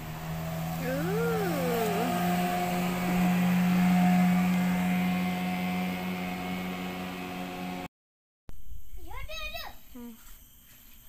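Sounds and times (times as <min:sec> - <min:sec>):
outboard motor passing by: 0:00.0 - 0:07.9.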